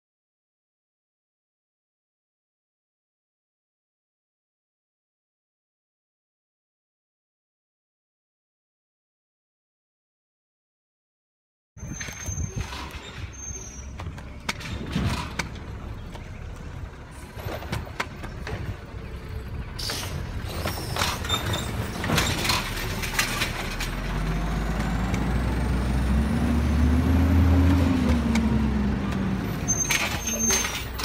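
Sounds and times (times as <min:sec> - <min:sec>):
garbage truck engine: 0:11.8 - 0:31.0.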